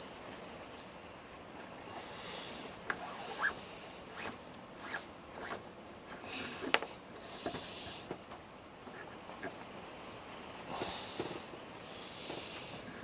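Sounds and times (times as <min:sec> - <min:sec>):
cord rubbing and zipping: 0:02.9 - 0:05.7.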